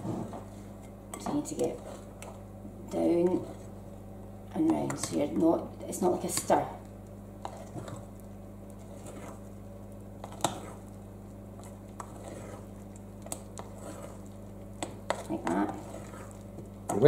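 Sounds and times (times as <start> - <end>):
steady low hum: 0.0 - 17.0
spoon scraping batter: 0.8 - 4.0, 7.3 - 17.0.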